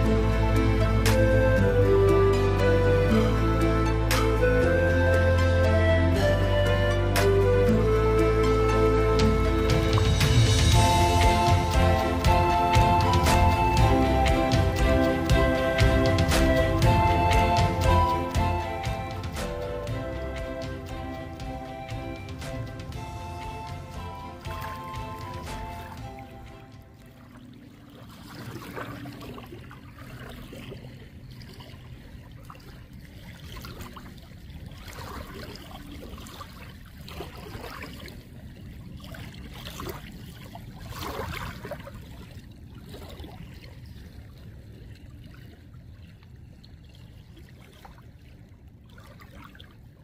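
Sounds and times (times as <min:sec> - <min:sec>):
soft water splashes: 0:00.0 - 0:50.0
low rumble: 0:07.5 - 0:27.2
small waves lapping at shore: 0:18.3 - 0:50.0.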